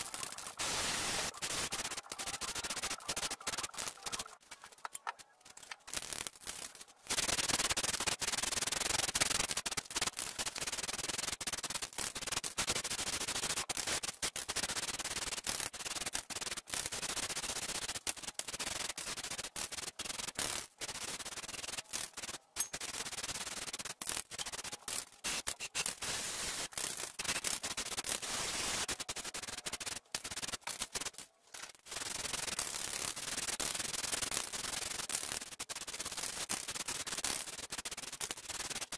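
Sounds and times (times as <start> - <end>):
aerosol spray can hissing: 0.0 - 4.3, 16.8 - 31.0.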